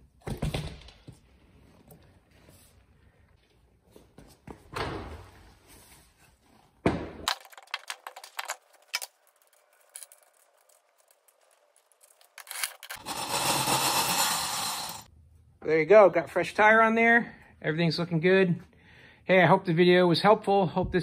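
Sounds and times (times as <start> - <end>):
cordless drill running: 12.4 - 15.1.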